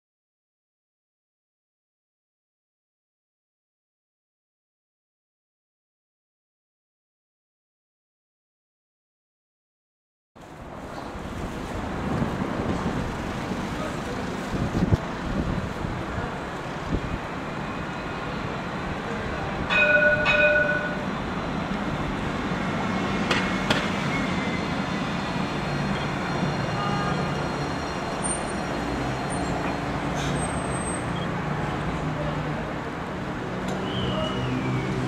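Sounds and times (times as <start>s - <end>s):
tram warning horn toots: 19.5s - 31.8s, 33.7s - 35.0s.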